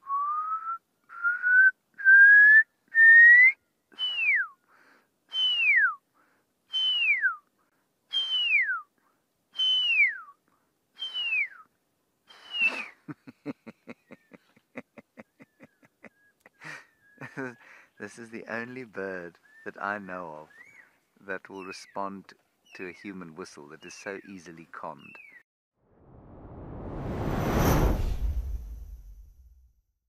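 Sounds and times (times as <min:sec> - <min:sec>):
person whistling owl call: 0:00.0 - 0:04.7, 0:05.3 - 0:06.0, 0:06.7 - 0:07.5, 0:08.1 - 0:08.9, 0:09.6 - 0:10.4, 0:11.0 - 0:11.7, 0:12.3 - 0:13.0, 0:15.4 - 0:17.6.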